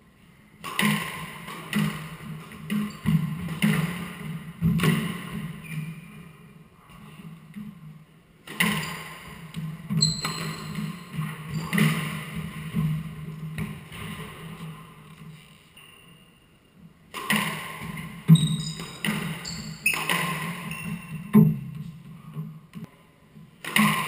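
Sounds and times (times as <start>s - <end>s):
squash ball knocks: 0.7s - 5.6s
short high squeak: 10.0s - 10.7s, 18.4s - 18.9s.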